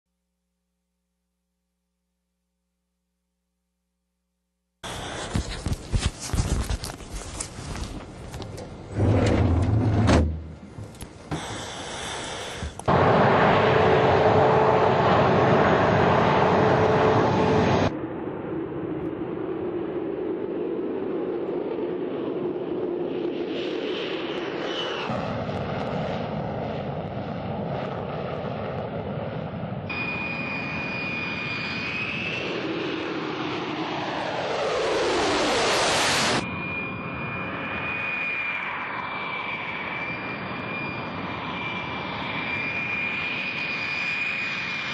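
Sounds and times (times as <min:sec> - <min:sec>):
high turbine whine: 0:04.8 - 0:06.1, 0:07.8 - 0:26.3, 0:29.9 - 0:44.9
jet engine rumble: 0:04.8 - 0:44.9
loud mechanical hum: 0:08.7 - 0:17.9.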